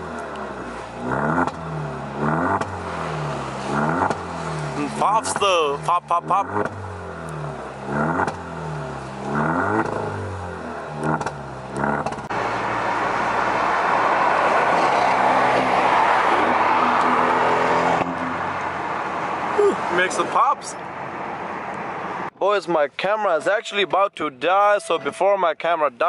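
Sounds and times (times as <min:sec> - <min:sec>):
exhaust popping: 0:00.0 - 0:19.1
car exhaust revving: 0:00.0 - 0:19.5
road and wind noise in car: 0:00.0 - 0:24.1.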